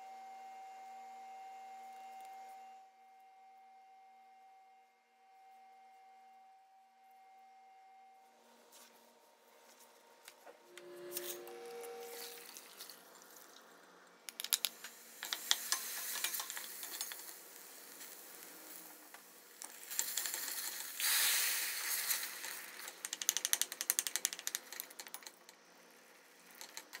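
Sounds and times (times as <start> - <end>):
stirring clicks: 14.3 - 17.4, 22.0 - 25.6, 26.4 - 27.0
oil sizzling: 14.7 - 23.0.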